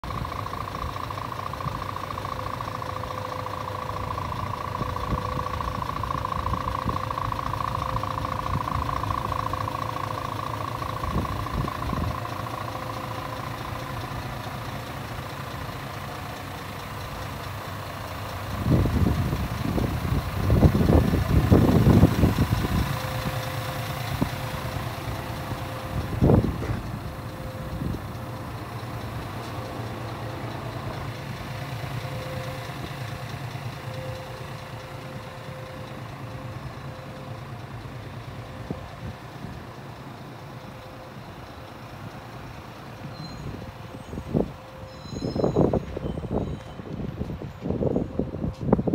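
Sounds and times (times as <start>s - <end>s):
diesel truck engine idling: 0.0s - 48.9s
bumps and rumbles: 24.1s - 29.7s.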